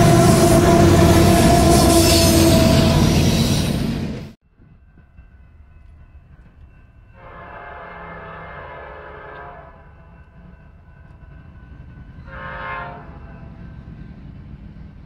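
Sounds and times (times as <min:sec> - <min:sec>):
locomotive air horn blast: 0:00.0 - 0:04.2, 0:07.2 - 0:09.8, 0:12.3 - 0:13.2
train low rumble: 0:00.0 - 0:15.0.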